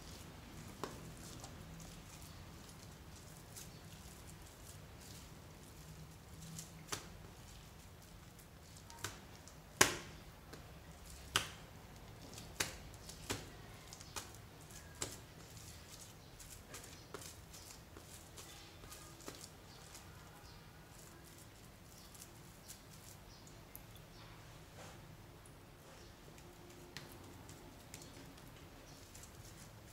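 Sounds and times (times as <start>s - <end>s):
slime being kneaded by hand: 0.0s - 29.9s.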